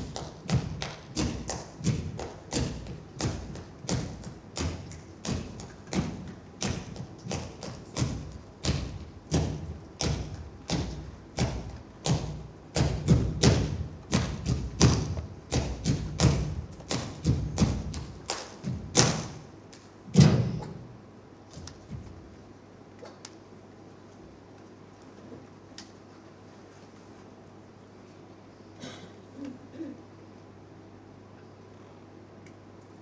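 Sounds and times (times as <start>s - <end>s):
bare feet stamping on wooden floor: 0.0s - 19.4s.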